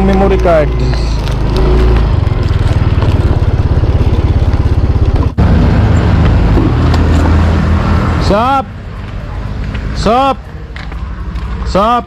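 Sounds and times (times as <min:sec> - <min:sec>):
scooter engine running: 0:00.0 - 0:08.2.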